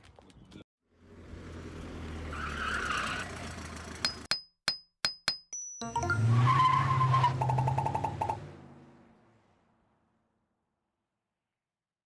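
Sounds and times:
tyre skid squealing: 2.2s - 4.0s, 6.2s - 8.2s
sharp clicks and dings: 4.0s - 6.2s
cartoon vehicle engine: 5.8s - 8.6s.

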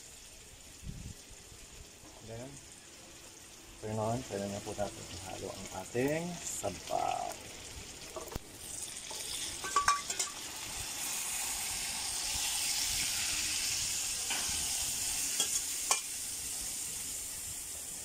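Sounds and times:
marinade sizzling in hot wok: 0.0s - 18.0s.

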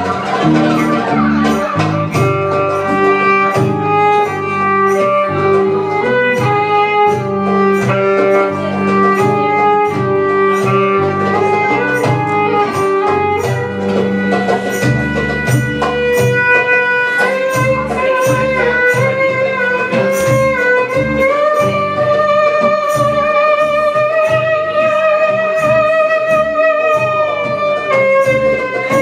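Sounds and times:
sharp ticking beat: 0.0s - 21.5s
bass guitar: 0.0s - 29.0s
plucked strings: 0.0s - 29.0s
violin melody: 0.0s - 29.0s.

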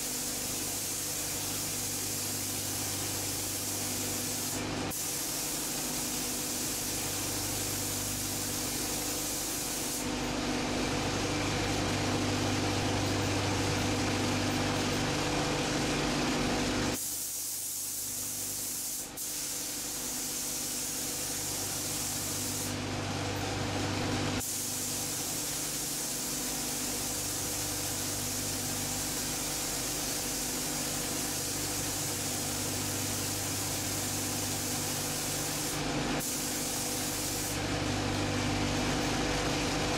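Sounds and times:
paint spray gun hissing: 0.0s - 10.1s, 16.9s - 22.8s, 24.4s - 37.6s.

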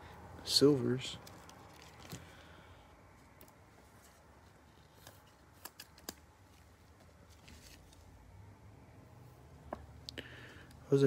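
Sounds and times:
light plastic rustles: 1.1s - 2.6s, 3.2s - 8.1s.

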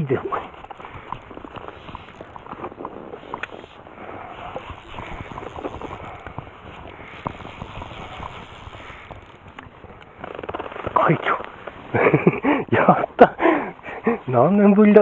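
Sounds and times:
rustling hiss: 0.0s - 15.0s
fishing reel clicks and knocks: 0.5s - 3.7s, 4.3s - 11.7s.

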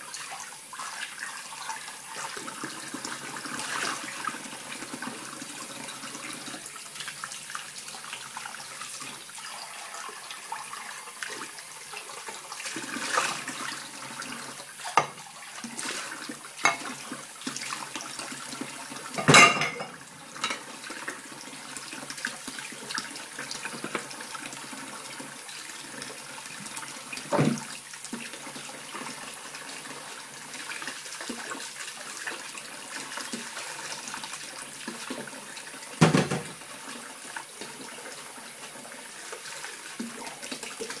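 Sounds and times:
tap running into sink: 14.9s - 15.2s, 16.6s - 17.0s, 27.2s - 27.7s, 36.0s - 36.6s
cutlery knocking: 16.6s - 16.9s, 19.2s - 20.6s.

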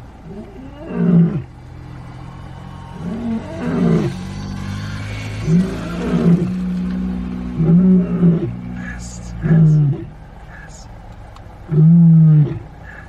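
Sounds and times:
lion roaring: 0.2s - 1.5s, 3.0s - 4.2s, 5.4s - 10.1s, 11.7s - 13.0s.

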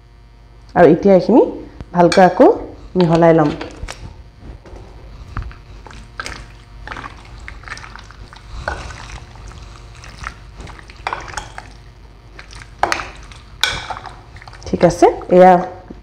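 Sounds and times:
spoon stirring wet marinade: 2.9s - 4.0s, 5.2s - 15.4s
spoon scraping bowl: 4.7s - 14.7s.

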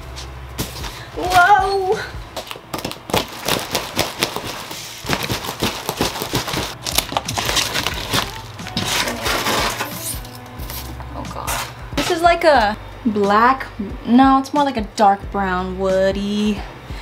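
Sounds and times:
cardboard crinkling and scraping: 2.8s - 10.2s.

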